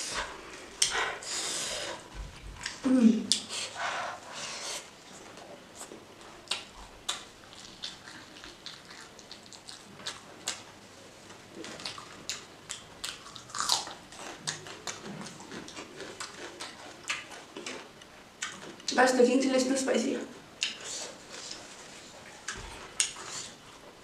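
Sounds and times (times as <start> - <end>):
wet chewing and lip smacks: 5.8 - 10.7, 11.6 - 19.0, 22.2 - 23.6.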